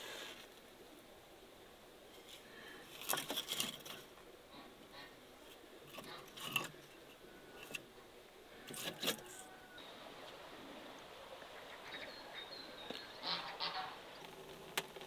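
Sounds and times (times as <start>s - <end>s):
wooden branches knocking and scraping: 2.2s - 4.2s, 5.5s - 7.9s, 8.6s - 9.5s.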